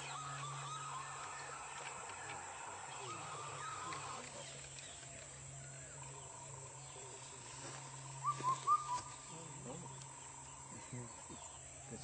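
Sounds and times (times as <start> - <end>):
cuckoo calling four-note phrase: 0.0 - 4.6
low steady hum: 0.0 - 12.0
small birds chirping: 0.0 - 12.0.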